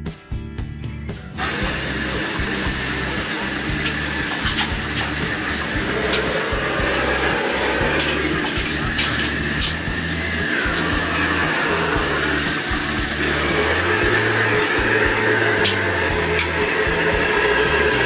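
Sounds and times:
guitar music: 0.0s - 18.0s
gas burner roaring: 1.4s - 18.0s.

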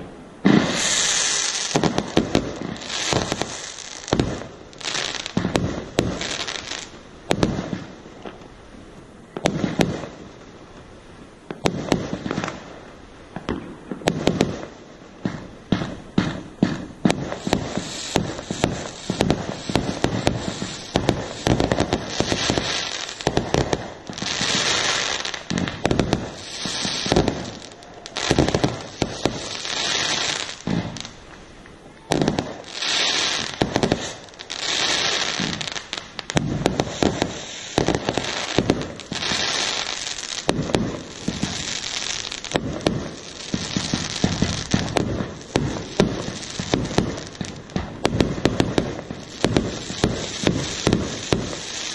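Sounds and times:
crackling hiss of fireworks: 0.0s - 51.9s
firework shells bursting: 32.0s - 51.9s.

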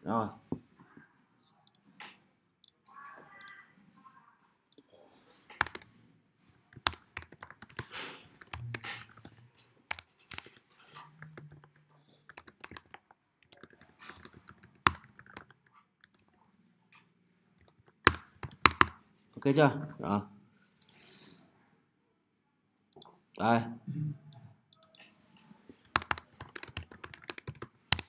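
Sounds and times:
computer keyboard typing: 5.4s - 5.9s, 6.7s - 16.3s, 17.6s - 19.0s, 24.8s - 25.1s, 25.8s - 28.0s.

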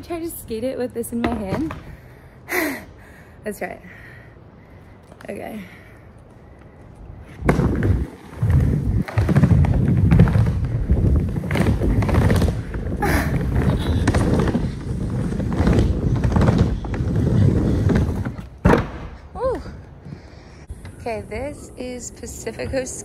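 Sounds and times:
skateboard wheels rolling on wood: 7.3s - 21.0s.

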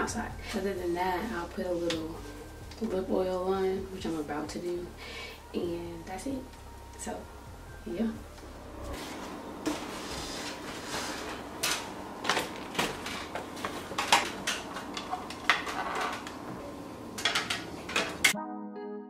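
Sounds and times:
piano music: 0.0s - 10.0s, 16.6s - 19.0s
room hum: 0.0s - 18.4s.

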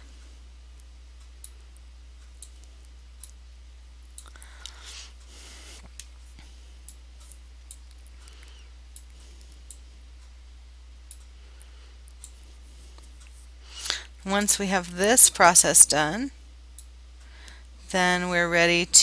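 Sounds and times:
low hum: 0.0s - 19.0s.

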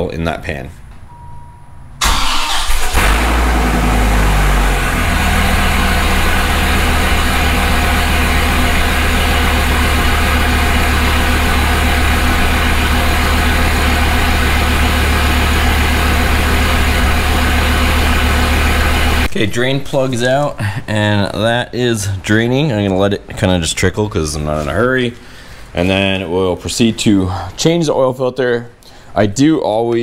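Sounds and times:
car engine starting and idling: 2.0s - 19.3s.

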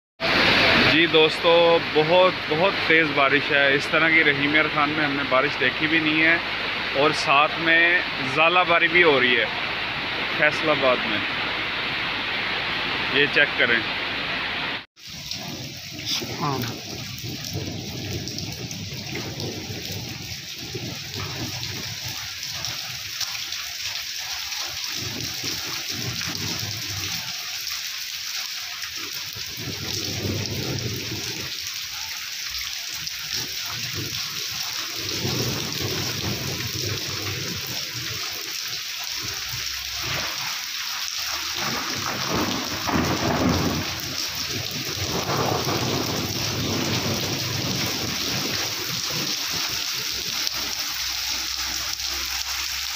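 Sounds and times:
heavy rain pouring: 0.2s - 52.9s
thunder rumbling: 15.0s - 23.2s, 24.6s - 27.3s, 29.1s - 31.7s, 33.2s - 38.4s, 41.3s - 51.1s.

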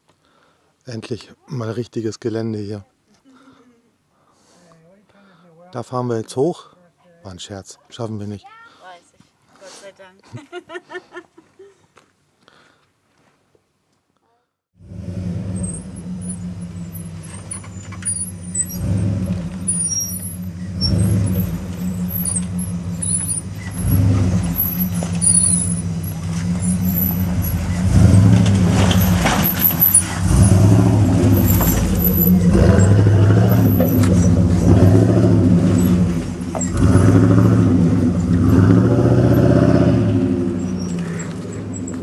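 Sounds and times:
truck engine running under load: 14.9s - 42.0s.

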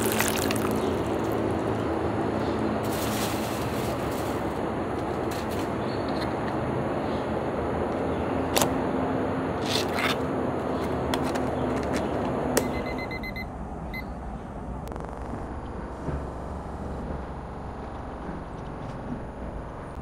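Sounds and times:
kitchen timer beeps: 12.6s - 14.1s.

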